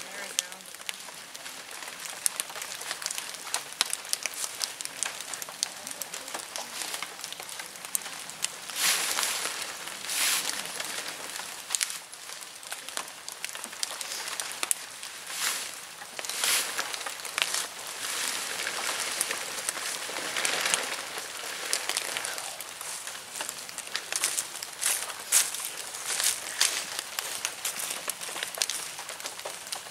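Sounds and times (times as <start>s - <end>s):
dry leaves crackling underfoot: 0.0s - 29.9s
tent fabric rustling: 8.7s - 12.1s, 14.1s - 28.4s.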